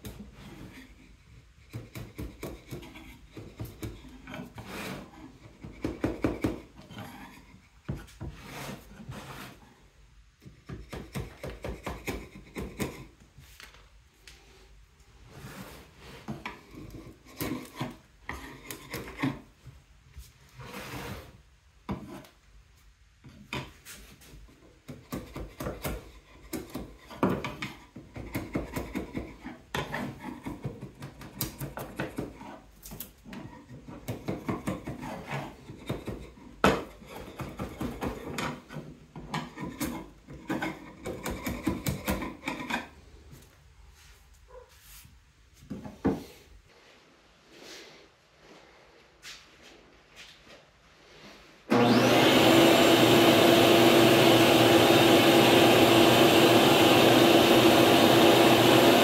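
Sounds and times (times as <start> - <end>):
hand scraping wooden board: 0.1 - 9.8, 20.5 - 21.4.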